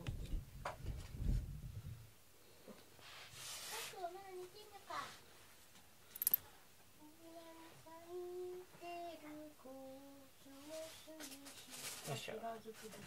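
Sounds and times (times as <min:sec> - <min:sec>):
sharp clicks: 0:06.2 - 0:06.4
person softly singing: 0:07.0 - 0:12.0.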